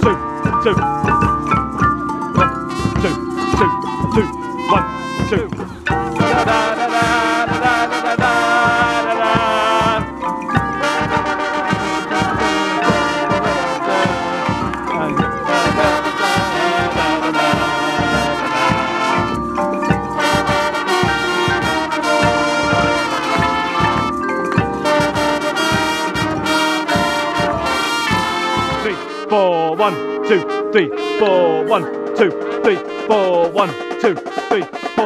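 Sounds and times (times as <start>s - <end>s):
marimbas: 0.0s - 34.9s
brass horn line playing in harmony: 0.0s - 35.0s
steady rhythmic drum beat: 0.0s - 35.0s.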